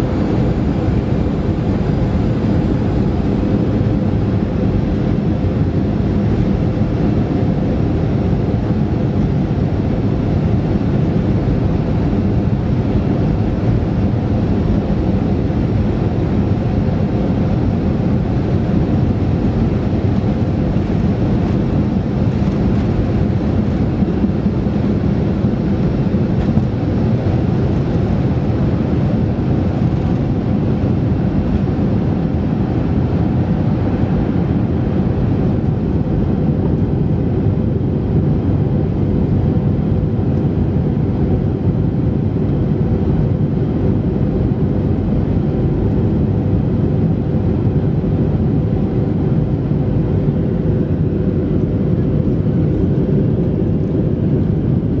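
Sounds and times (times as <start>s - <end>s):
jet engines at takeoff thrust: 0.0s - 55.0s.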